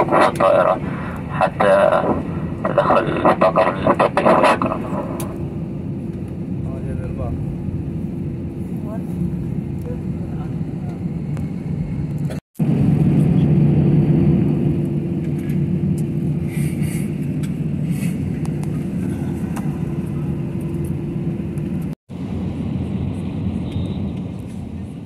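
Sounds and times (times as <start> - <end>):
steady hum: 0.0 - 8.6
jet engine cabin rumble: 0.0 - 25.0.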